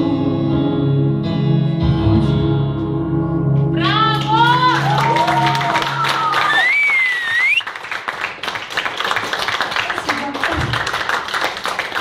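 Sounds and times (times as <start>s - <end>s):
song with keyboard: 0.0s - 6.3s
people clapping: 4.1s - 12.0s
high rising whistle: 6.5s - 7.7s.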